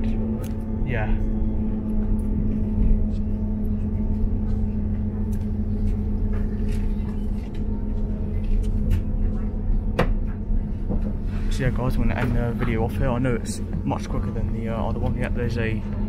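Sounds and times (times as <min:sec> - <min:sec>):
train interior drone: 0:00.0 - 0:16.0
wheels rumbling on track: 0:00.0 - 0:16.0.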